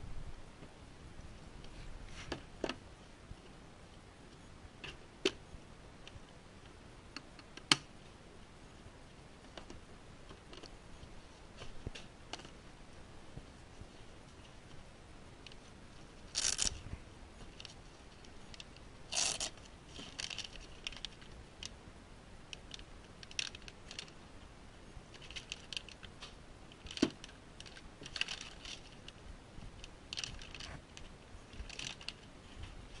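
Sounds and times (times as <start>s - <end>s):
plastic bags crinkling: 16.3s - 16.8s, 18.5s - 21.3s, 25.1s - 26.1s, 26.8s - 29.1s, 30.1s - 32.3s.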